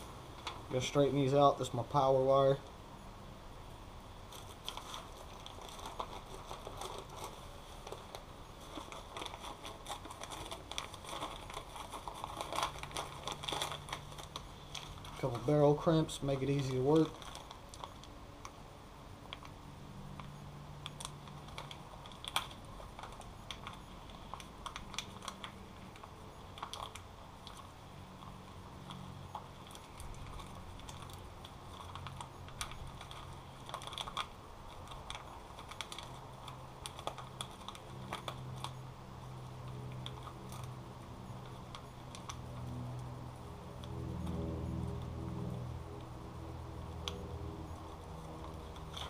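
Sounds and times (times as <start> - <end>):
faint low hum: 0.0 - 49.0
clicks and rustles of wire handling: 4.3 - 18.6, 19.3 - 38.8, 47.0 - 49.0.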